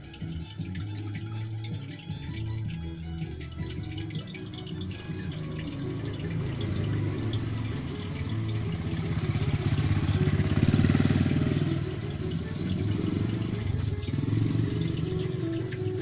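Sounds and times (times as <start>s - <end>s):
low motor hum: 0.0s - 16.0s
water churning and bubbling: 0.0s - 16.0s.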